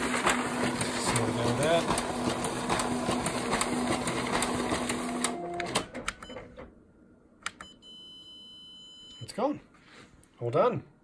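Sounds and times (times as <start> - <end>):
rapid clicks of document feeder: 0.0 - 6.0
copier motor hum: 0.0 - 6.6.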